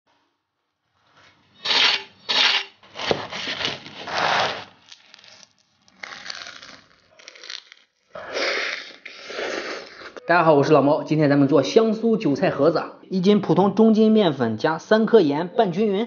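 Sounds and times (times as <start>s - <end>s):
crunching crispy pastry: 2.9s - 10.0s.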